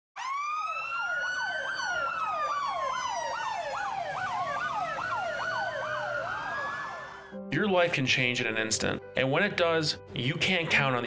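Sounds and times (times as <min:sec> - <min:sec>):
siren fast falling sweep: 0:00.2 - 0:07.4
siren slow wail: 0:00.2 - 0:07.5.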